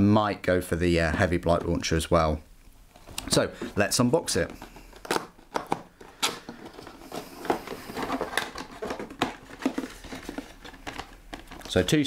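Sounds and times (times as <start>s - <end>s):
cardboard scraping and rubbing: 6.5s - 12.0s.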